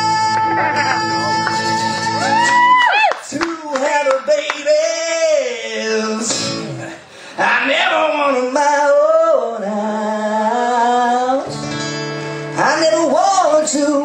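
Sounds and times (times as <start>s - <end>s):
man singing: 0.0s - 11.6s, 12.4s - 14.0s
guitar strumming: 11.4s - 14.0s.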